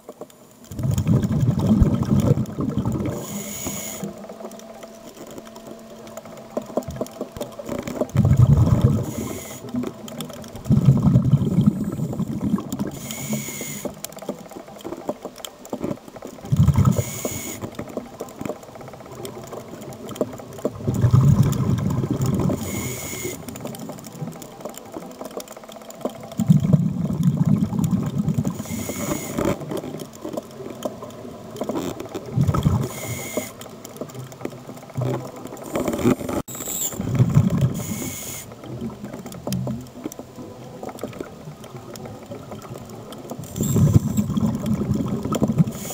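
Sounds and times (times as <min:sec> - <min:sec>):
exhaled bubbles rumbling: 0:00.6 - 0:04.8, 0:05.8 - 0:13.2, 0:15.8 - 0:25.3, 0:25.9 - 0:45.9
regulator inhale hiss: 0:03.0 - 0:04.2, 0:08.9 - 0:09.8, 0:11.6 - 0:14.0, 0:16.8 - 0:17.7, 0:22.5 - 0:23.4, 0:28.6 - 0:29.5, 0:32.8 - 0:33.6, 0:37.7 - 0:38.6, 0:45.7 - 0:45.9.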